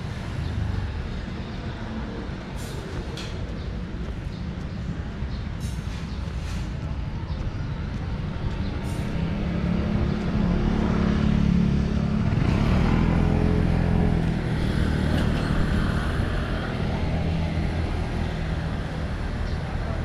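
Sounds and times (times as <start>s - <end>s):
motorcycle engines at low speed: 7.7s - 20.0s.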